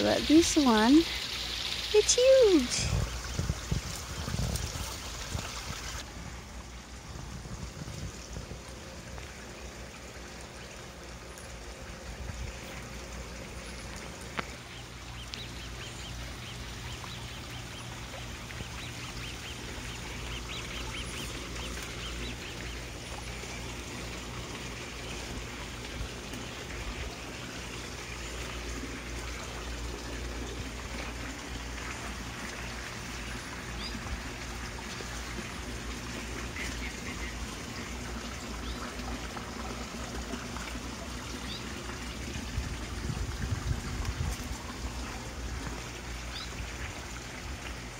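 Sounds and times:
running water trickling: 0.0s - 47.9s.

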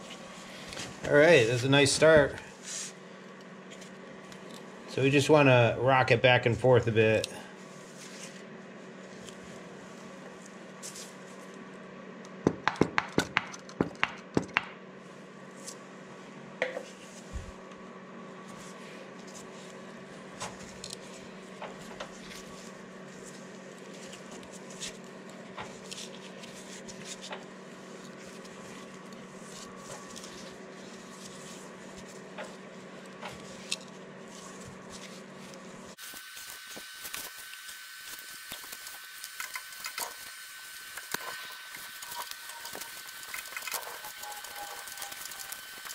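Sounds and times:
steady low hum: 0.0s - 44.2s.

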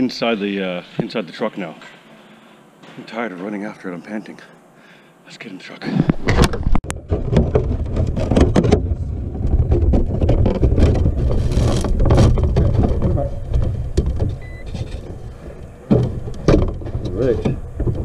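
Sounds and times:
knocks clicks and scraping on plastic: 6.1s - 18.0s
low rubbing rumble on microphone: 6.6s - 18.0s.

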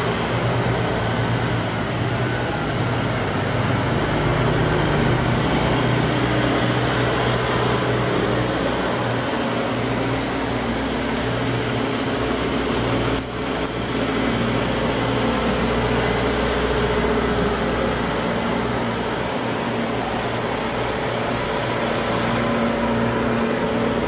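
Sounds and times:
truck diesel engines droning: 0.0s - 24.0s
high-pitched squeak: 13.2s - 14.2s.

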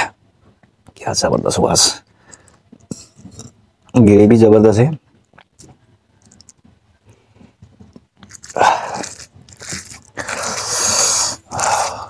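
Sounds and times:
faint small clicks: 5.2s - 6.6s
wet bites and chewing: 8.0s - 11.7s.

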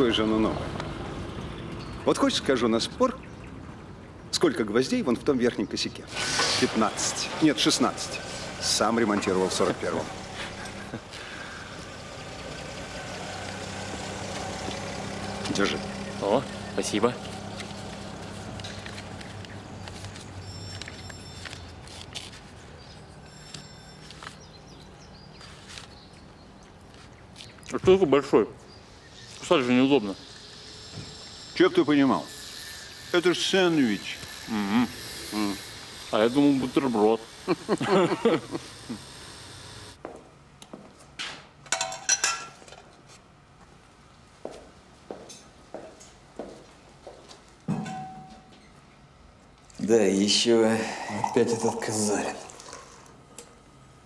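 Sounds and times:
paper wrappers crinkling: 17.2s - 22.7s.

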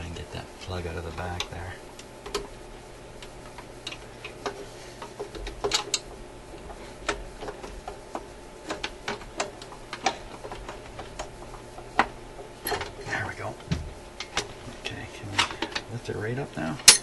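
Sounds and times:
small sharp clicks and knocks: 3.2s - 13.0s.

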